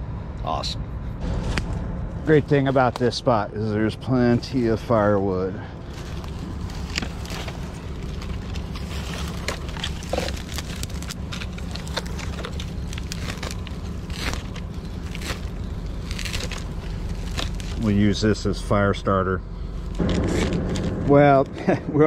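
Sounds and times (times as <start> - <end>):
low mechanical hum: 0.0 - 22.0
twigs snapping and crackling: 5.8 - 18.0.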